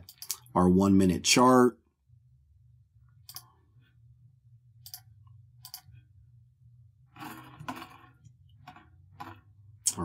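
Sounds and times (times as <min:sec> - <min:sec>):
computer mouse clicking: 0:00.0 - 0:00.5, 0:03.2 - 0:03.6, 0:04.8 - 0:06.0
low steady hum: 0:00.0 - 0:10.0.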